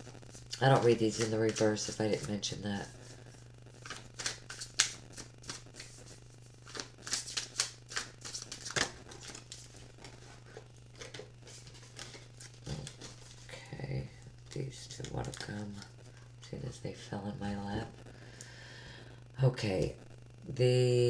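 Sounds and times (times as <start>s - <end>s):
steady low hum: 0.0s - 21.0s
cards being shuffled: 0.3s - 3.2s, 3.8s - 13.5s, 14.4s - 16.7s.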